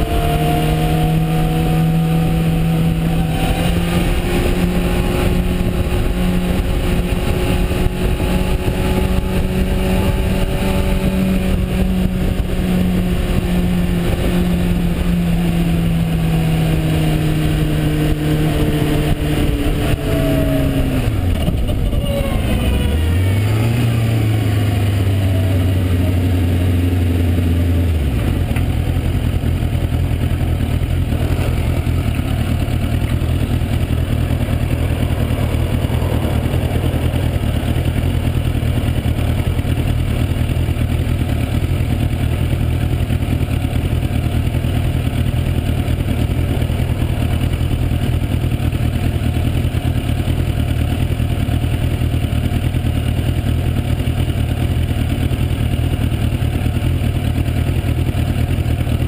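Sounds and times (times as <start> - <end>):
wind rush: 0.0 - 23.0, 32.7 - 39.8
motorcycle engine: 0.0 - 59.0.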